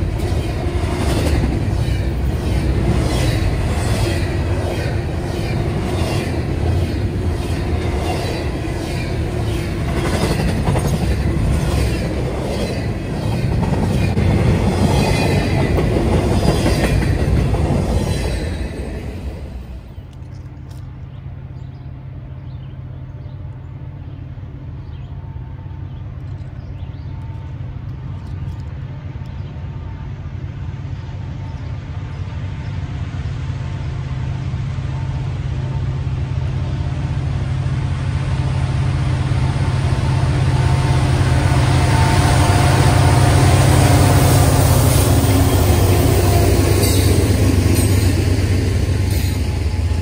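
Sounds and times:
sharp clicks of train wheels: 0:00.0 - 0:21.1, 0:40.7 - 0:50.0
diesel locomotive engine drone: 0:00.0 - 0:50.0
train wheels on rails: 0:00.0 - 0:50.0.

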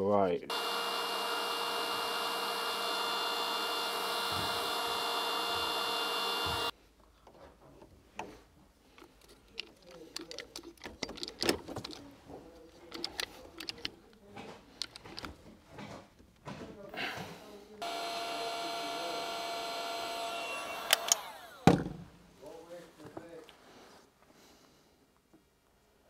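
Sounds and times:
heat gun blowing: 0:00.5 - 0:06.7, 0:17.8 - 0:21.7
hand tool clicks and rubbing: 0:08.9 - 0:12.1, 0:12.7 - 0:14.2, 0:14.8 - 0:15.4, 0:20.8 - 0:21.2.

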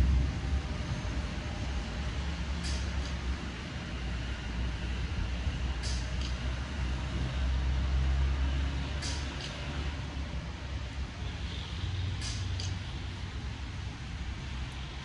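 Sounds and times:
low rumble: 0:00.0 - 0:02.4.

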